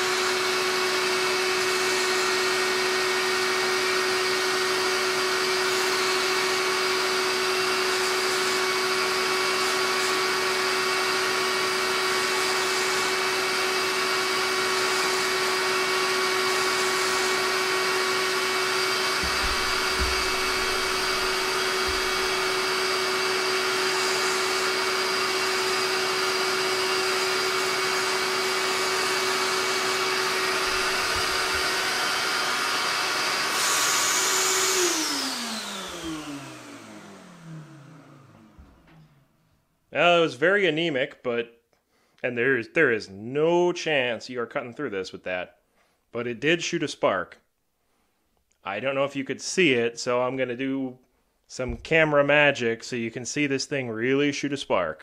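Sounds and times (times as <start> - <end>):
shop vacuum whining: 0.0 - 40.4.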